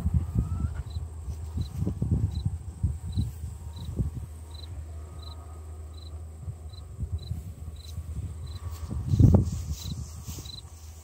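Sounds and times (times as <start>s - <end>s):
low rumbling: 0.0s - 11.0s
cricket chirping: 0.4s - 10.7s.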